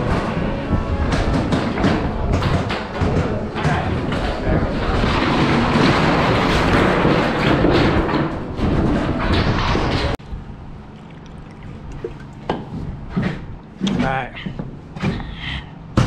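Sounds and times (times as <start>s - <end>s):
sheet metal duct rattling and scraping: 0.0s - 10.2s.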